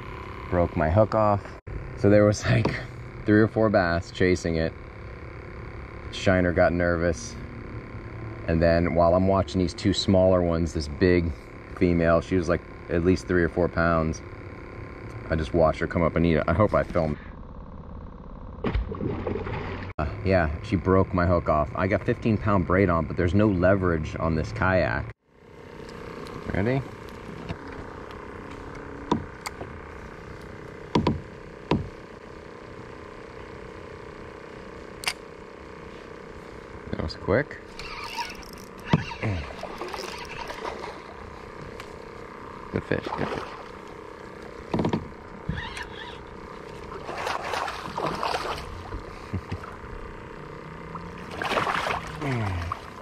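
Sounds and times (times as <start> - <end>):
steady low hum: 0.0 - 53.0
fishing reel clicks and knocks: 37.8 - 39.0
fish thrashing and splashing: 38.1 - 41.2, 46.7 - 49.8, 51.0 - 53.0.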